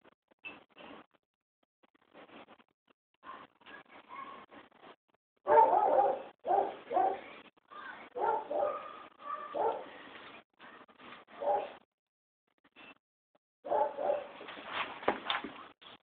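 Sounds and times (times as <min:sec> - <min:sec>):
dog barking: 0:05.5 - 0:07.3, 0:08.2 - 0:09.9, 0:11.4 - 0:11.8, 0:13.7 - 0:14.4.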